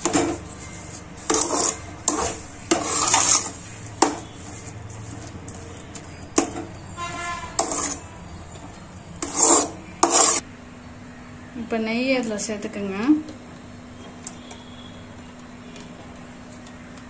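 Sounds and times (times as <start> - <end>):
metal spatula scraping pan: 0.0 - 10.4.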